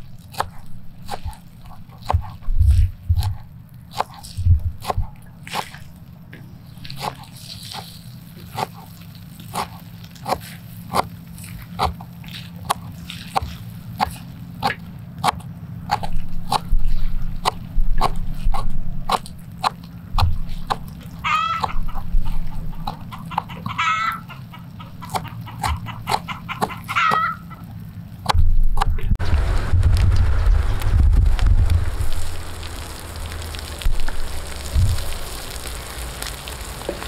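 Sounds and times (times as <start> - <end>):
knife chopping on wooden board: 0.3 - 5.8, 7.0 - 8.9, 9.5 - 11.1, 11.8 - 16.7, 17.4 - 20.9.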